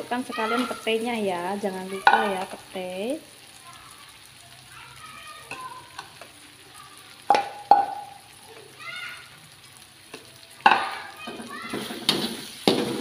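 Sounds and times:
frying sizzle: 0.0 - 13.0
spatula clanging on wok: 2.0 - 2.7, 7.3 - 8.2, 10.6 - 13.0
spatula stirring in wok: 11.6 - 13.0.

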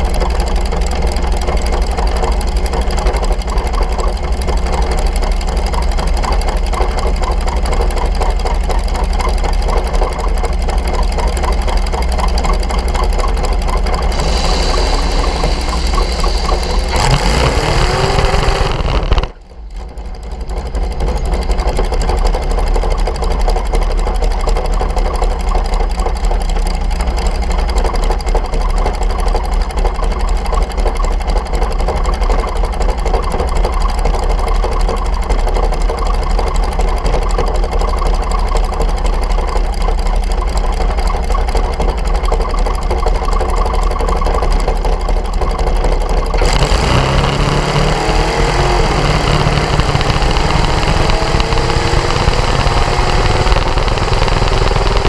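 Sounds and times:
dragster engine idling: 0.0 - 55.0
rising hiss: 14.1 - 19.2.

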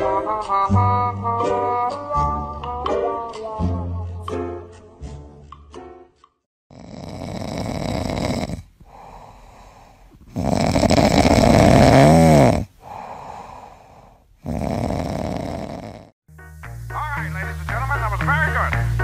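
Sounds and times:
kitten snoring: 6.7 - 16.2
soft breaths: 7.7 - 16.2.

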